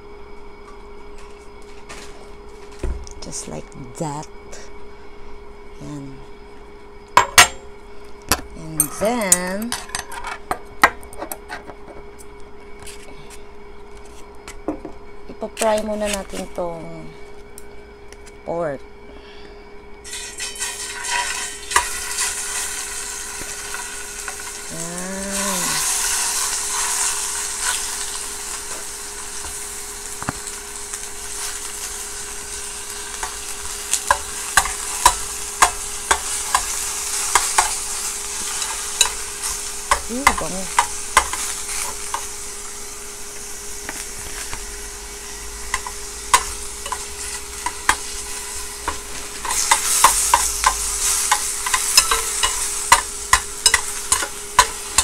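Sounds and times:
meat sizzling in a pot: 20.0s - 55.0s
metal chopsticks clicking on pot: 49.5s - 55.0s.

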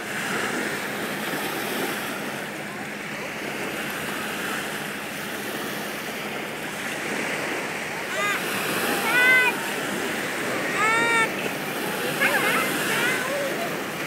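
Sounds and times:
small waves washing onto sand: 0.0s - 14.0s.

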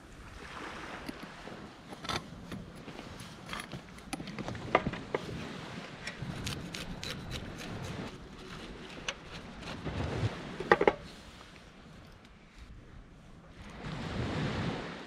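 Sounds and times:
knife scraping fish: 6.2s - 9.8s.

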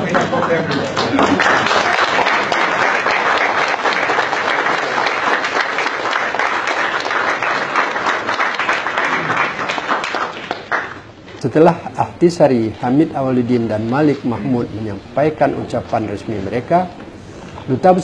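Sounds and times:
crowd applauding: 0.0s - 11.1s.

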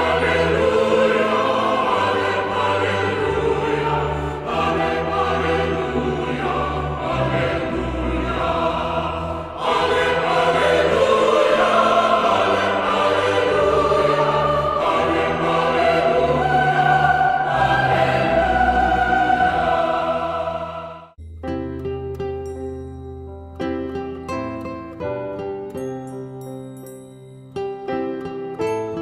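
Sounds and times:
choir singing sustained chords: 0.0s - 21.2s.

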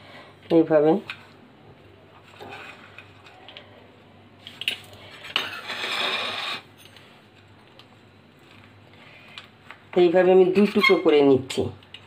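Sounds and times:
pizza cutter scraping ceramic plate: 5.3s - 6.7s.

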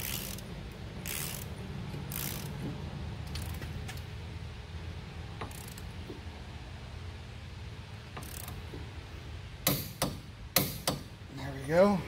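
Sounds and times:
torque wrench ratcheting: 0.0s - 2.7s, 3.3s - 3.6s, 5.4s - 5.9s, 8.2s - 8.7s
steady low hum: 0.0s - 12.0s.

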